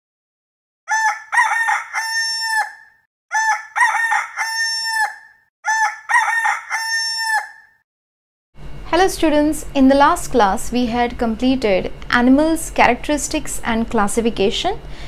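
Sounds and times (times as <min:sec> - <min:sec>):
rooster crowing: 0:00.9 - 0:07.8.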